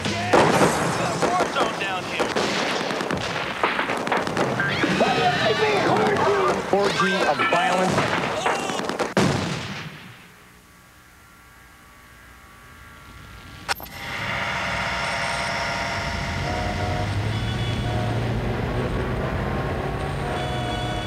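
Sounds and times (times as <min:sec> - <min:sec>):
sharp crack: 0:00.0 - 0:05.2, 0:07.7 - 0:10.4.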